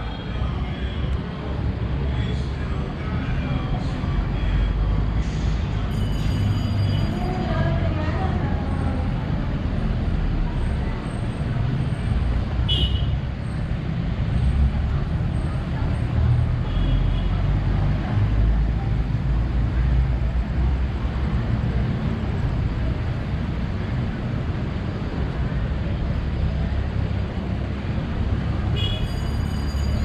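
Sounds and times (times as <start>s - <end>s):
city traffic rumble: 0.0s - 30.0s.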